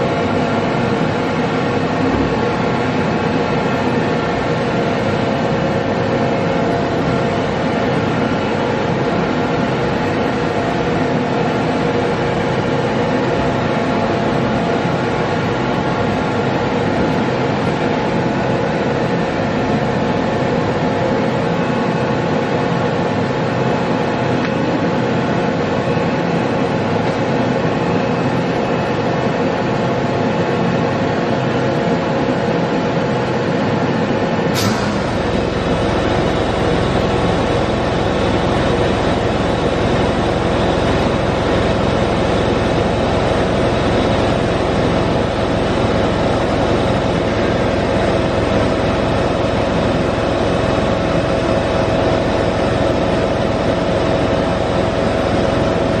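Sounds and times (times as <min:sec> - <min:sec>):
deeper machine rumble: 0:00.0 - 0:24.4, 0:34.4 - 0:56.0
boring mill mechanical hum: 0:00.0 - 0:56.0
steady machine whine: 0:00.0 - 0:56.0
sharp click: 0:34.6 - 0:35.2.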